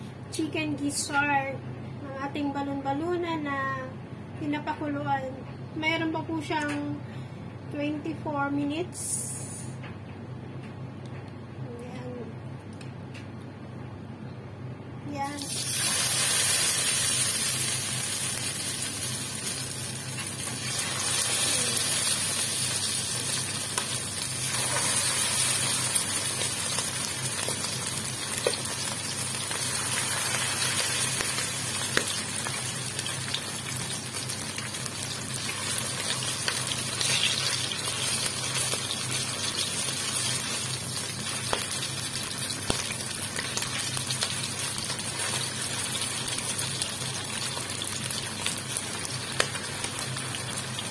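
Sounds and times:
liver sizzling in hot oil: 15.4 - 50.9.

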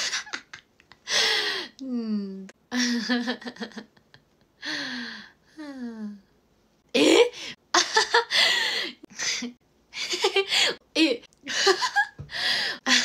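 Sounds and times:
woman laughing: 0.0 - 0.7, 2.7 - 4.1, 7.0 - 12.2.

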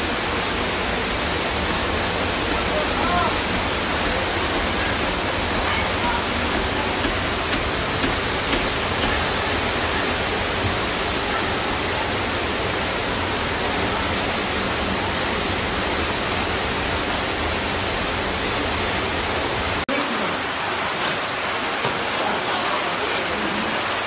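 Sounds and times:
flood water rushing: 0.0 - 24.0.

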